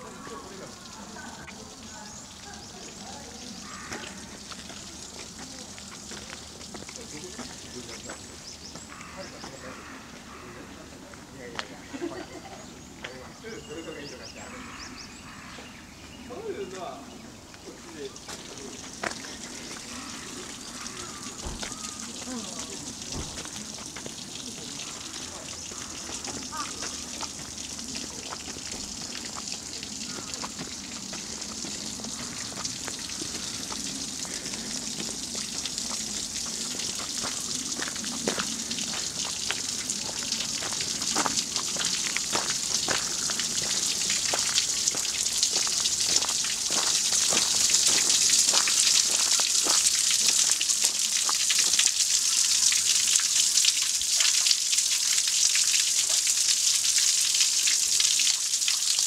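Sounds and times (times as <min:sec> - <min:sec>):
water splashing into a pit: 0:18.0 - 0:59.0.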